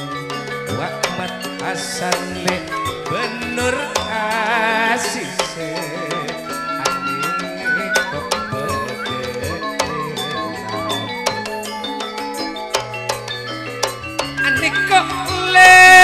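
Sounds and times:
wavering vibrato melody: 0:00.0 - 0:16.0
hand drum strokes: 0:05.4 - 0:12.1.

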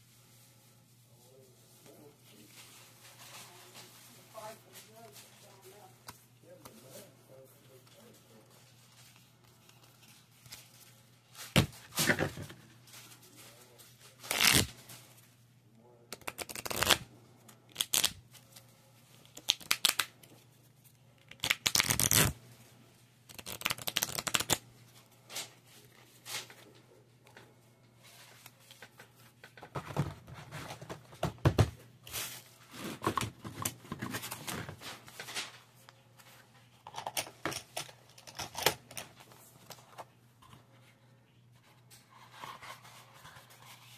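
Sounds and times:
playing cards being shuffled: 0:14.3 - 0:14.7, 0:16.1 - 0:17.0, 0:17.7 - 0:18.2, 0:19.3 - 0:20.1, 0:21.3 - 0:22.4, 0:23.3 - 0:24.6.

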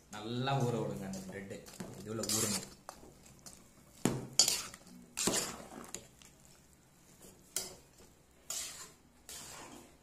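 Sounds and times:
metal spoon scraping metal pot: 0:02.2 - 0:02.8, 0:04.4 - 0:05.8, 0:08.5 - 0:10.0.

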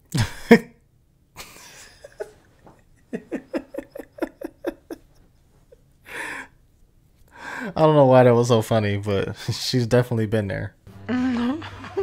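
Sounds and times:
man laughing: 0:01.4 - 0:05.2, 0:11.1 - 0:12.0.

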